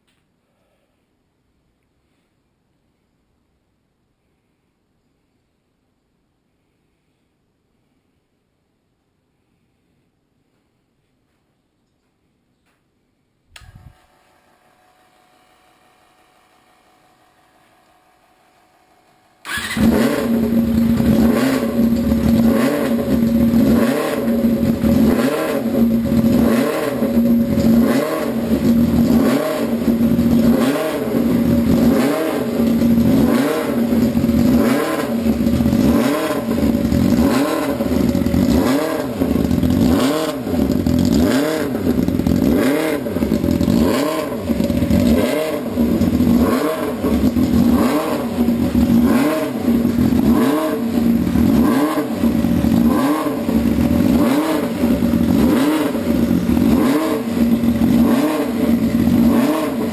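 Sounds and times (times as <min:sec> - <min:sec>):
engine revving rhythmically: 0:19.4 - 0:59.9.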